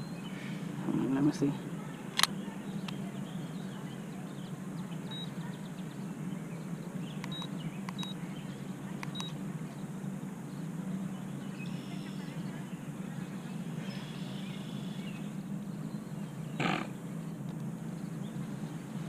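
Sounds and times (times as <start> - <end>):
steady low hum: 0.0 - 19.0
short high beeps with clicks: 7.3 - 8.2.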